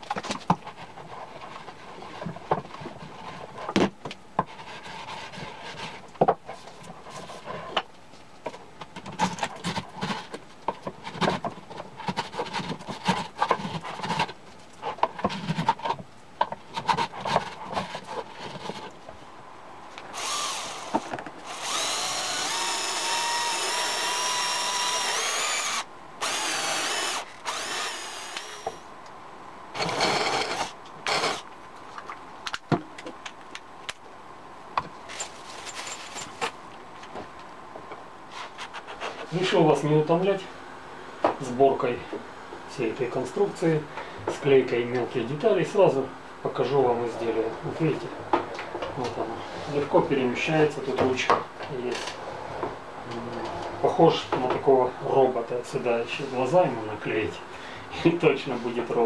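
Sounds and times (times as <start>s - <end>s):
cordless drill boring into wood: 20.1s - 28.8s, 29.8s - 31.4s.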